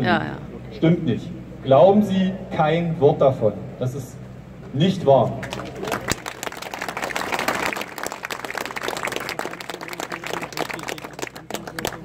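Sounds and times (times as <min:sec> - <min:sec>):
crowd applauding: 0:05.4 - 0:12.0.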